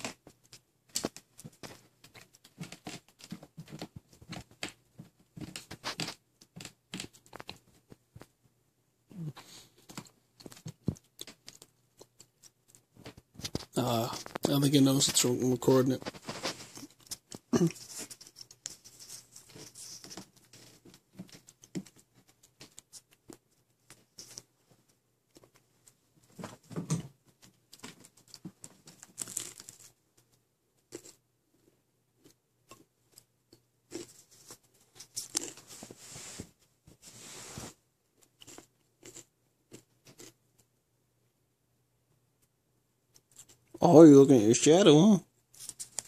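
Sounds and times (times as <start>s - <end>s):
kitten clawing on carpet: 16.0s - 24.6s.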